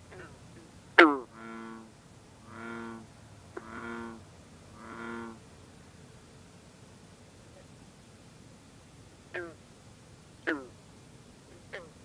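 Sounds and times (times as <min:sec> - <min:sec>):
low bullfrog calls: 0:00.0 - 0:05.5, 0:09.3 - 0:09.6, 0:10.4 - 0:10.8, 0:11.5 - 0:12.0.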